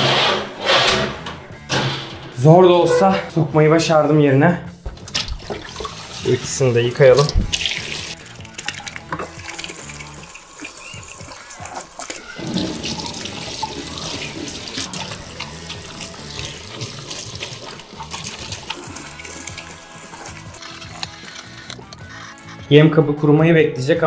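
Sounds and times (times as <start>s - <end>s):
plastic dishes being rinsed: 4.9s - 20.6s
tap water running into sink: 4.9s - 20.7s.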